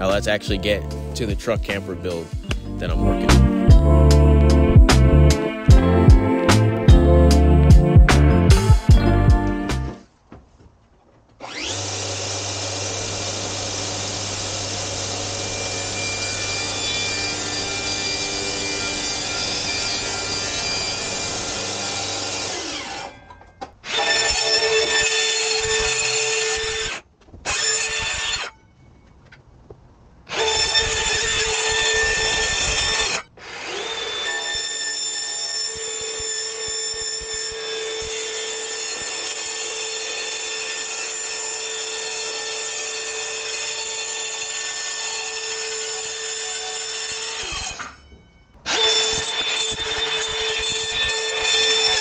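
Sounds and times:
circular saw cutting plywood: 0:11.4 - 0:28.6, 0:30.3 - 0:48.1, 0:48.7 - 0:52.0.

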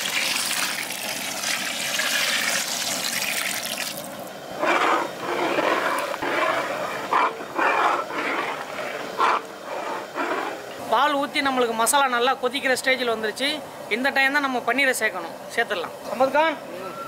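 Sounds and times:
milk pouring into a pot: 0:00.0 - 0:04.1
ladle stirring thick gravy: 0:04.6 - 0:10.7.

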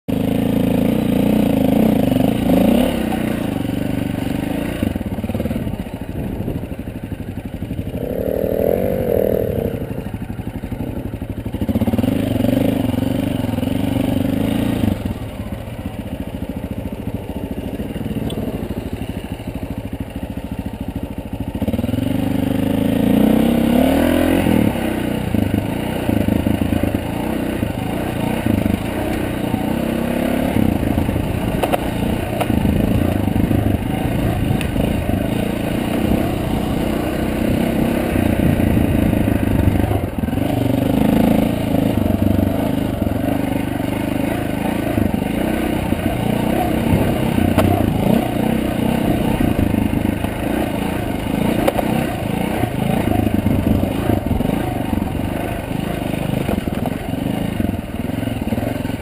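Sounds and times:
dirt bike engine revving: 0:00.1 - 0:05.7, 0:07.7 - 0:10.4, 0:21.6 - 0:59.0.

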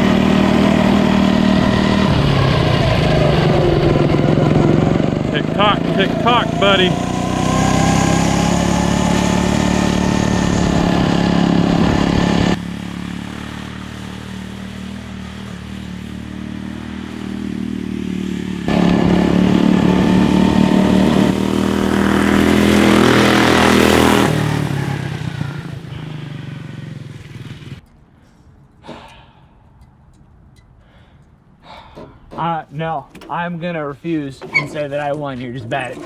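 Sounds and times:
go-kart engine running hard: 0:00.0 - 0:27.8
rough rushing noise: 0:00.0 - 0:27.8.

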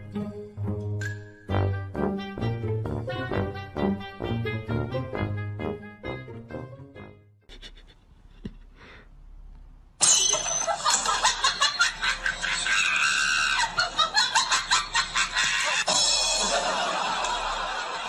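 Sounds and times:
person laughing hard: 0:07.5 - 0:08.7, 0:10.8 - 0:18.0.

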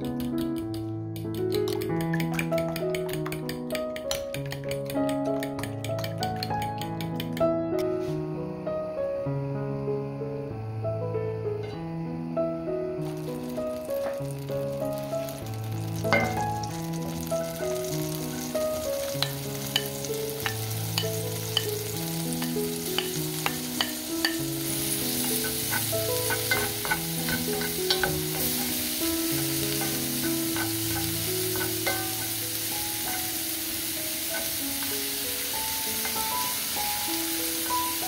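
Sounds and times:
wooden spatula tapping pan: 0:00.0 - 0:07.5, 0:17.8 - 0:32.5
soft background melody: 0:00.0 - 0:38.0
vegetables sizzling in butter: 0:12.7 - 0:38.0.

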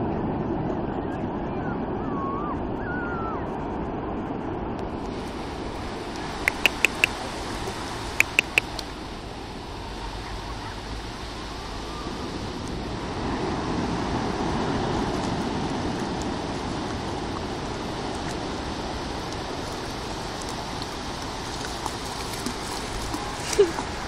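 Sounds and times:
wind on microphone: 0:00.0 - 0:24.0
ocean surf rushing: 0:04.9 - 0:24.0
sharp clicks: 0:06.5 - 0:07.2, 0:08.2 - 0:08.9.

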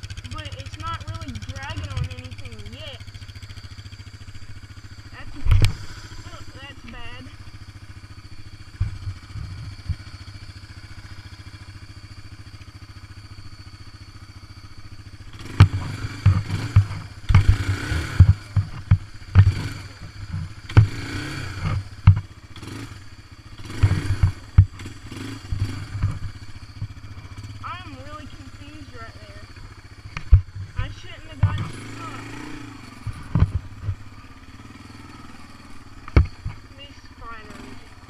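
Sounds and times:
atv engine idling: 0:00.0 - 0:38.0
loud irregular thumps and knocks: 0:15.5 - 0:19.7, 0:21.6 - 0:22.3, 0:33.1 - 0:34.0, 0:36.1 - 0:36.6.

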